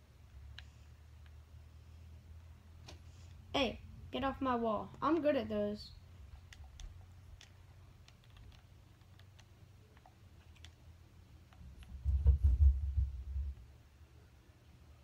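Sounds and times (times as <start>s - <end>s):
game controller buttons clicking: 6.4s - 10.8s.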